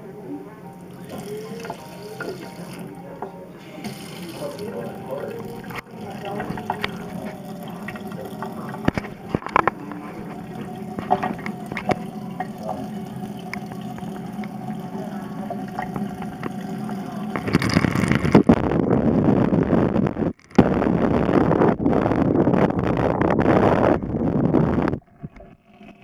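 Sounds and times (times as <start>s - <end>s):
tap running into steel sink: 3.8s - 14.6s.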